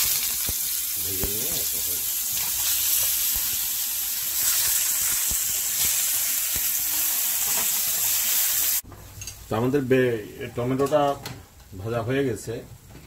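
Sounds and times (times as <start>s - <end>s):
tomatoes sizzling in hot oil: 0.0s - 8.9s.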